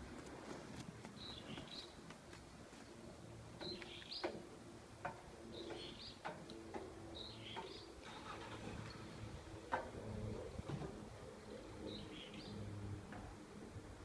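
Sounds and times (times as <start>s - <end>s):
bird chirping: 1.2s - 2.0s, 5.5s - 6.3s, 7.1s - 8.2s, 11.8s - 12.6s.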